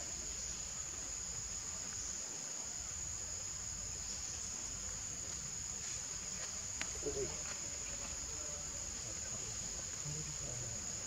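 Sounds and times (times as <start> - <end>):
insect chorus drone: 0.0 - 11.0.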